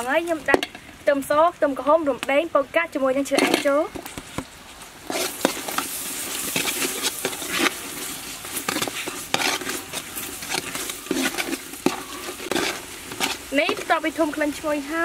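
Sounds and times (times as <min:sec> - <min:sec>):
sauce sizzling and bubbling: 0:00.0 - 0:15.0
metal ladle scraping pot: 0:05.0 - 0:14.6.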